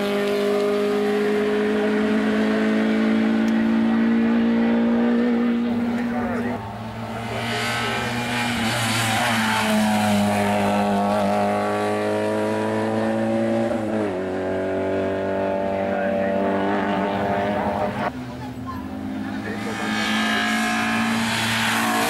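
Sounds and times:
race car engine at full throttle: 0:00.0 - 0:22.0.

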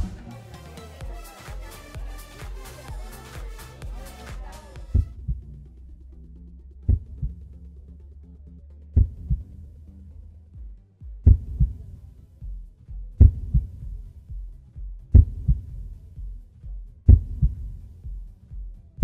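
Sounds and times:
heartbeat thuds: 0:00.0 - 0:00.3, 0:01.0 - 0:05.7, 0:06.8 - 0:07.6, 0:09.0 - 0:19.0.

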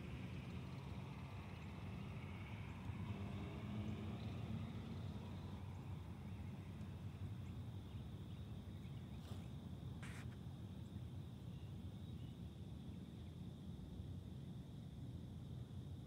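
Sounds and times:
short hissing sounds: 0:09.2 - 0:10.4.

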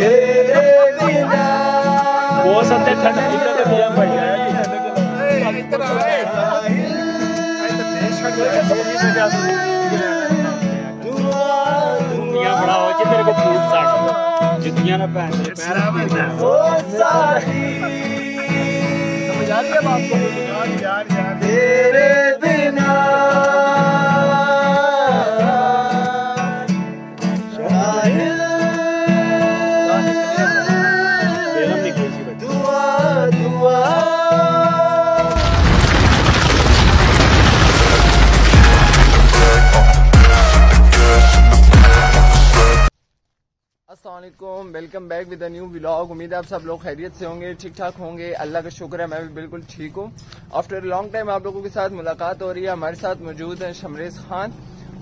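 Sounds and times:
men singing together: 0:00.0 - 0:14.8, 0:15.8 - 0:20.8, 0:21.4 - 0:26.8, 0:27.5 - 0:36.6
strummed acoustic guitar: 0:00.0 - 0:42.9.

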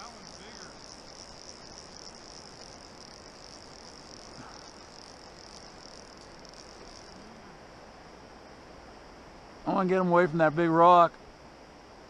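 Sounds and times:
fishing reel drag buzzing: 0:00.0 - 0:07.2.

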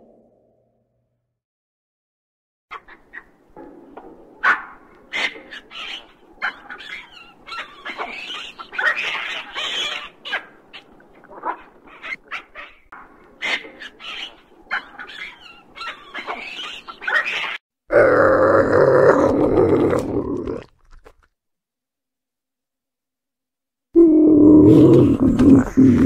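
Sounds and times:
baboons calling: 0:04.4 - 0:20.0.

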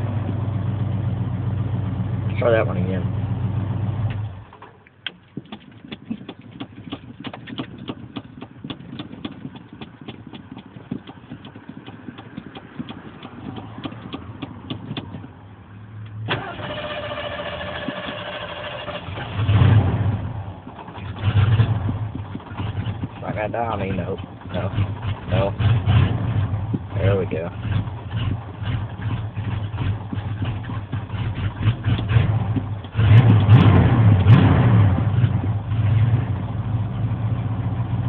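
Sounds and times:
starter cranking: 0:05.0 - 0:15.3, 0:16.3 - 0:19.4
engine running roughly: 0:05.3 - 0:15.4, 0:16.3 - 0:38.0
engine revving: 0:16.1 - 0:38.0.

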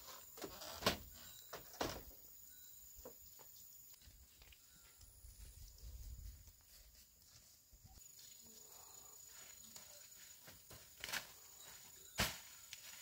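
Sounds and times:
footsteps on dirt path: 0:03.4 - 0:13.0
rustling vegetation: 0:03.4 - 0:13.0.

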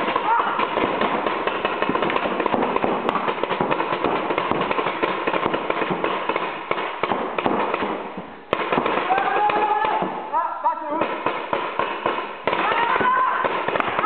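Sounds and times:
paintball guns firing rapidly: 0:00.0 - 0:08.0, 0:11.0 - 0:14.0.

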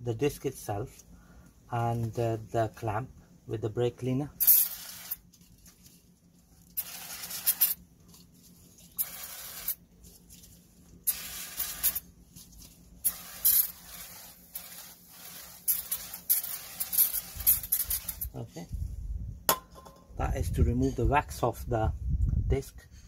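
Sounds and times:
aerosol spray hissing: 0:04.4 - 0:05.2, 0:06.8 - 0:07.8, 0:08.9 - 0:09.8, 0:11.0 - 0:12.1, 0:13.0 - 0:18.4.

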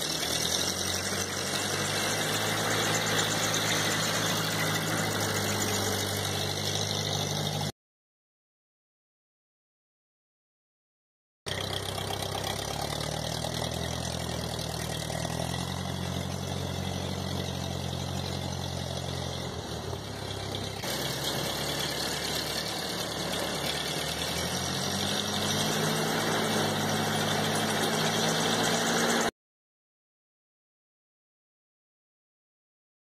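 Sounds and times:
tractor engine running: 0:00.0 - 0:07.7, 0:11.5 - 0:29.3.

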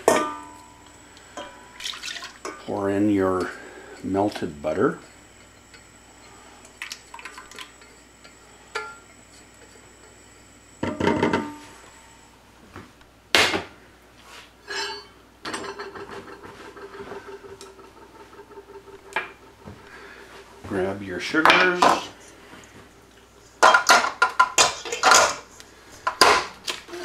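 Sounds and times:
metal cookware clanking: 0:00.0 - 0:00.7, 0:14.6 - 0:19.4, 0:23.6 - 0:25.5.

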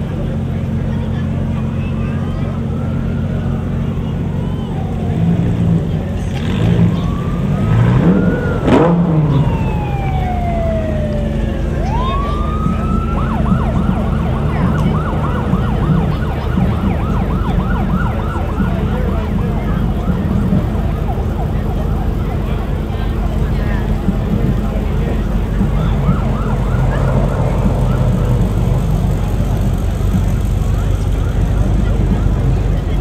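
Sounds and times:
low engine rumble: 0:00.0 - 0:33.0
emergency siren wailing and yelping: 0:01.9 - 0:23.2, 0:24.8 - 0:31.5.

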